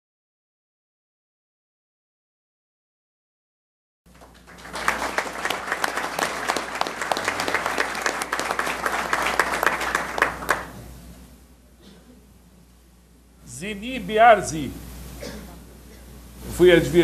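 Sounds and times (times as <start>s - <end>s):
audience applauding: 4.1s - 10.8s.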